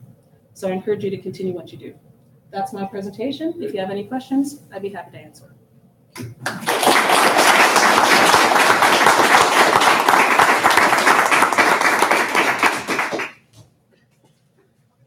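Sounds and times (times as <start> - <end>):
audience applauding: 6.2 - 13.4.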